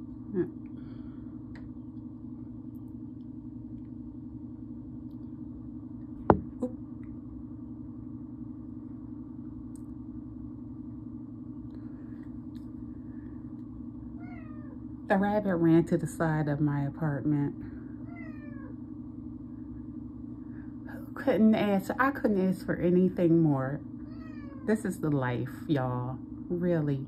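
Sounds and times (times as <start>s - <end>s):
steady low hum: 0.0s - 27.0s
cat meowing: 14.2s - 14.8s, 18.1s - 18.7s, 24.1s - 24.7s.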